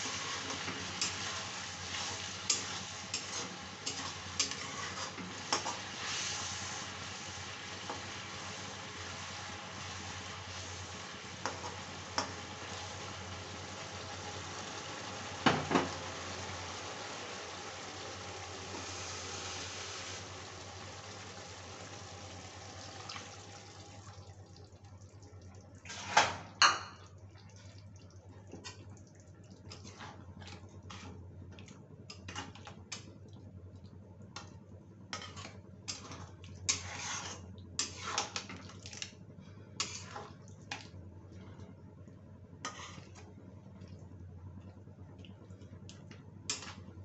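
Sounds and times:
metal spatula scraping pan: 0.0 - 6.4, 35.2 - 38.5, 39.8 - 40.3
gravy simmering hiss: 0.0 - 26.5, 35.2 - 41.0.

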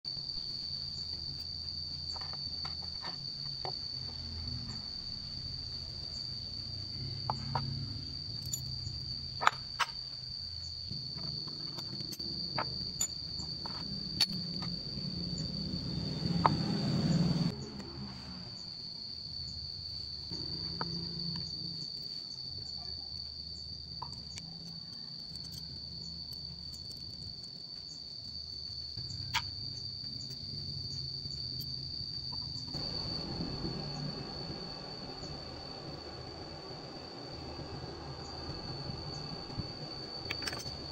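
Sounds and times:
insects trilling: 0.1 - 40.9
rushing noise: 32.8 - 40.9.

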